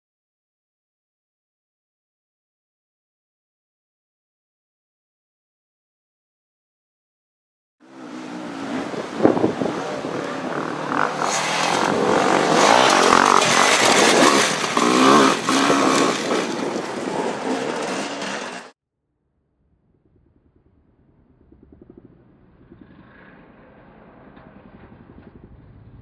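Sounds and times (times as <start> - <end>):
dirt bike engines revving: 7.8 - 18.7
track noise: 7.8 - 18.7.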